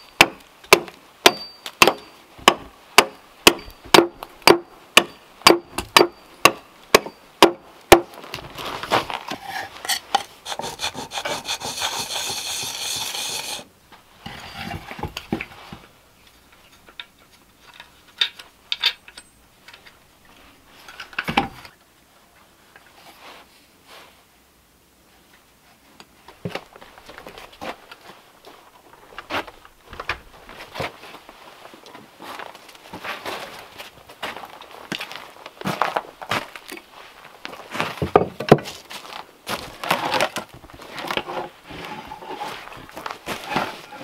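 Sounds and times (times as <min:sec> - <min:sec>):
axe chopping wood: 0:00.2 - 0:08.2
hand plane stroke: 0:09.3 - 0:13.7
hand tool rubbing wood: 0:09.3 - 0:13.7.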